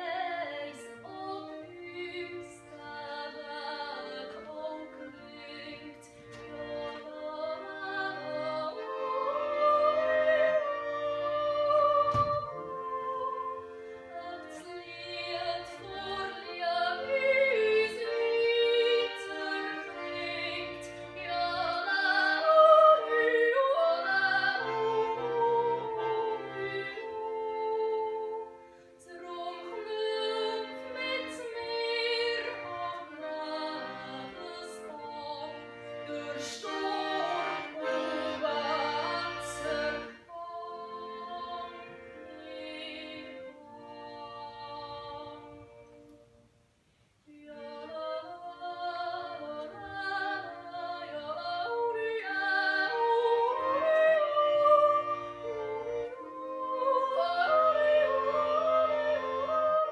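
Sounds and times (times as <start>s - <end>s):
instrumental accompaniment: 0.0s - 59.9s.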